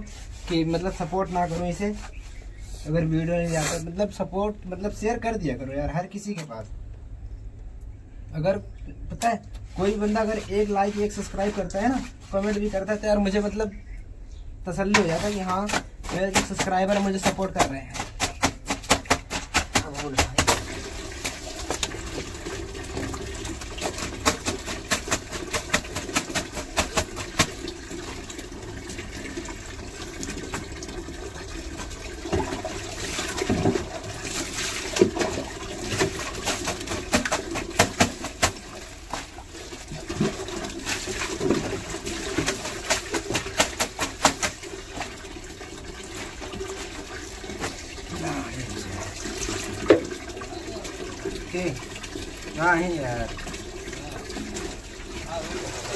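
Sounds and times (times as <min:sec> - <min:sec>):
scrubbing and slapping wet cloth: 0:00.0 - 0:04.0, 0:09.2 - 0:13.5, 0:14.8 - 0:55.9
tap running into a tub: 0:14.9 - 0:55.9
water splashing: 0:14.9 - 0:55.9.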